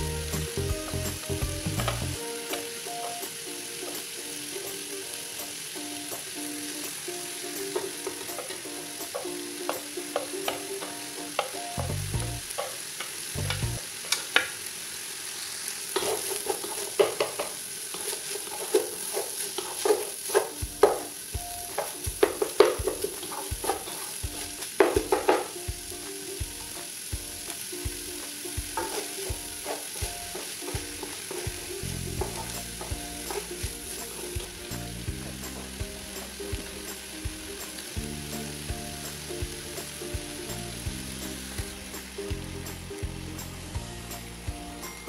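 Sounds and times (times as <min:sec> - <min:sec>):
food sizzling: 0:00.0 - 0:45.0
wooden spatula scraping a pan: 0:15.9 - 0:25.6, 0:28.2 - 0:37.0.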